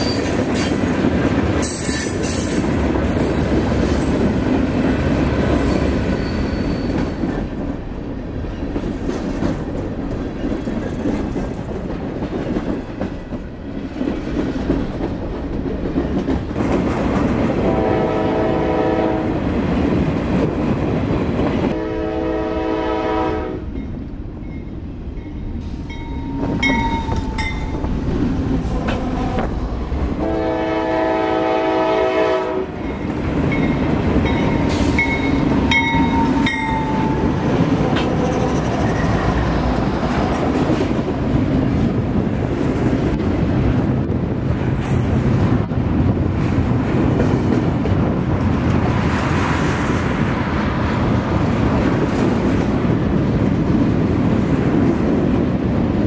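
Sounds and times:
freight train wheels clacking: 0:00.0 - 0:18.1, 0:23.6 - 0:56.0
locomotive horn blasts: 0:17.6 - 0:19.4, 0:21.7 - 0:23.7, 0:30.2 - 0:32.8
crossing bell ringing: 0:23.7 - 0:28.0, 0:32.8 - 0:37.6.

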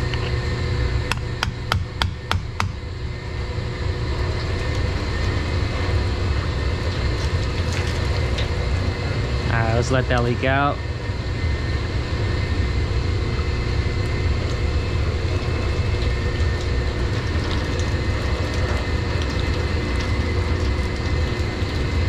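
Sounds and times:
machinery drone: 0:00.0 - 0:22.0.

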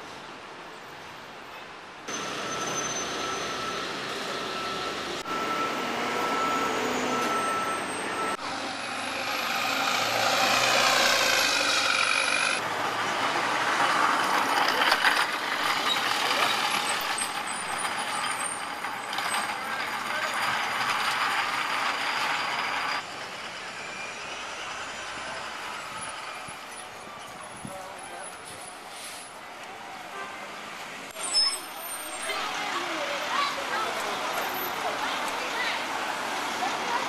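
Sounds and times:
city street traffic: 0:00.0 - 0:37.0
vehicle passing close: 0:08.2 - 0:17.1.

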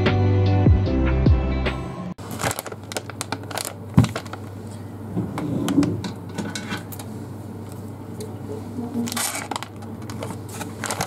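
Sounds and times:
plastic pouch crinkling: 0:02.2 - 0:04.8, 0:09.0 - 0:11.0.

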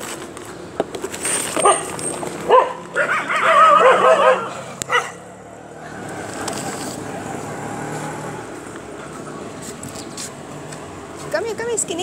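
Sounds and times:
distant traffic: 0:00.0 - 0:12.0.

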